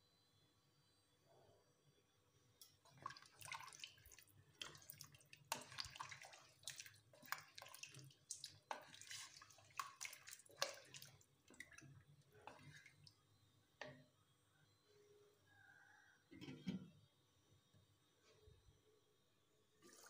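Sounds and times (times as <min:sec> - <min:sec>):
liquid sloshing in a pot: 0:02.6 - 0:13.2, 0:19.8 - 0:20.0
spatula knocking and scraping pot: 0:04.6 - 0:13.0.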